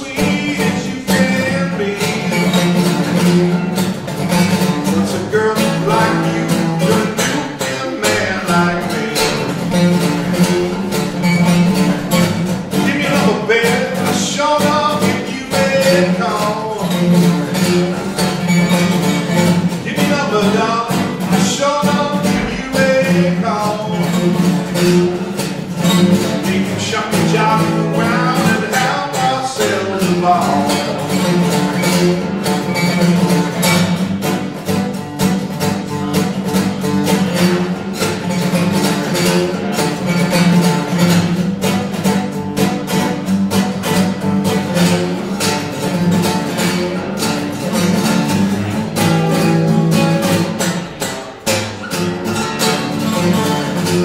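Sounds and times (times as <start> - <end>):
acoustic guitar strummed: 0.0 - 54.0.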